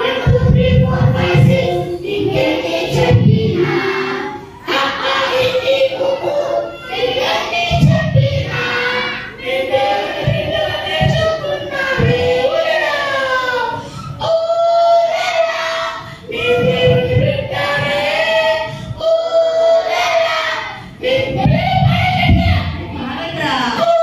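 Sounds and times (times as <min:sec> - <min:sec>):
low thumps: 0:00.0 - 0:06.4, 0:07.0 - 0:13.5, 0:16.3 - 0:20.4, 0:21.0 - 0:23.0
group of voices singing: 0:00.0 - 0:24.0.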